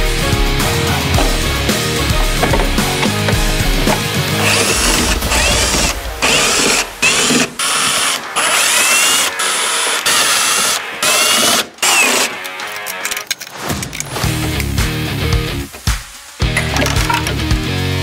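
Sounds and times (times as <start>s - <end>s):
power screwdriver motor whine: 3.8s - 13.0s.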